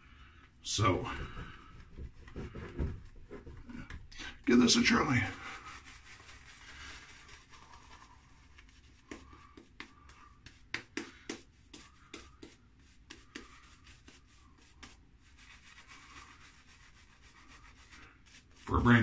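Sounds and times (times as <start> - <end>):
sharp brush strokes: 4.5 - 19.0
shaving brush swishing lather: 4.5 - 19.0.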